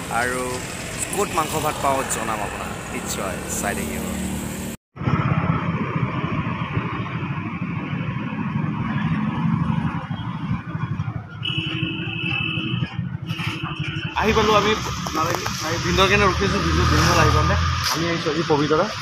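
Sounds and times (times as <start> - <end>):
road and wind noise: 0.0 - 19.0
motorcycle engine running: 6.2 - 15.6.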